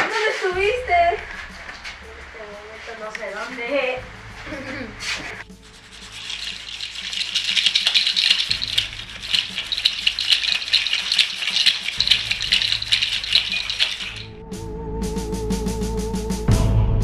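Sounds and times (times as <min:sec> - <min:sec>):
pencil scratching on paper: 0:05.6 - 0:06.7.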